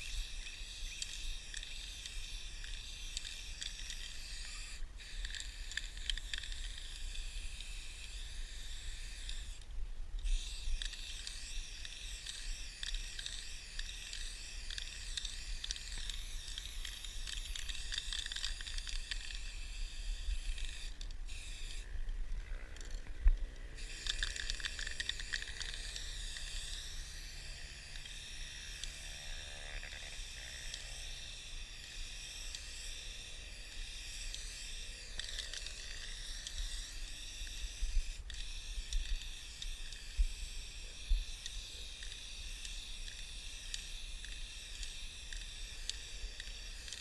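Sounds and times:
spray paint can hissing: 0.0 - 9.6, 10.3 - 21.8, 23.8 - 28.9, 30.2 - 47.0.

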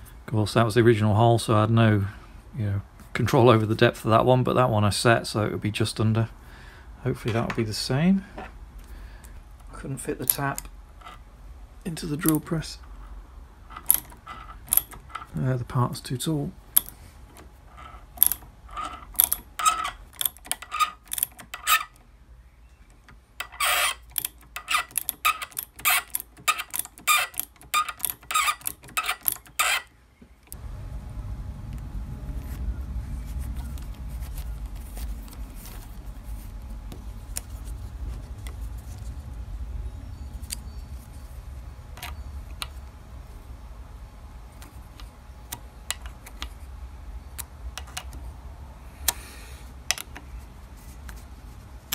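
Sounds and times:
steady low hum: 0.0 - 51.9
ratcheting tap wrench clicking: 13.8 - 15.0, 18.2 - 21.9, 23.4 - 29.8.

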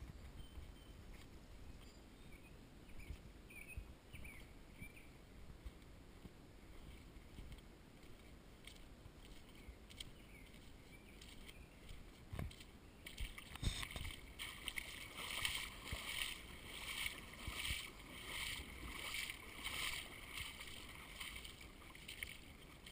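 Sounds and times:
footsteps sloshing through water: 3.0 - 22.9.

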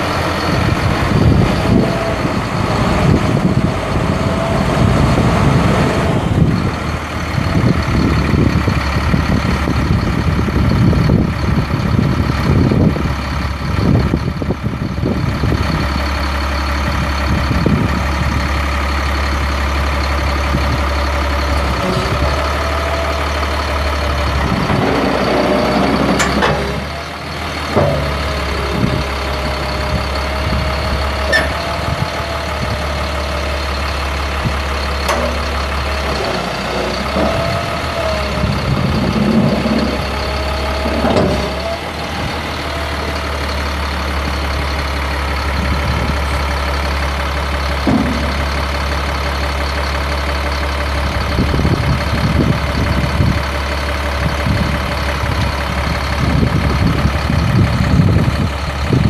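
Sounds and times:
diesel truck engine idling: 0.0 - 59.0
scattered knocks: 47.8 - 48.8.

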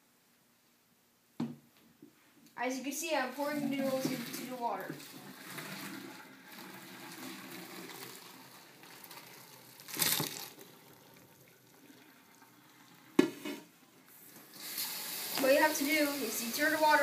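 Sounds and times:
water pouring into a colander: 3.3 - 13.2, 14.5 - 17.0.

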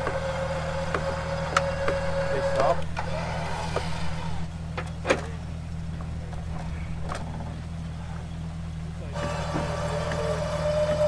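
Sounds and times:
vehicle engine idling: 0.0 - 11.0.

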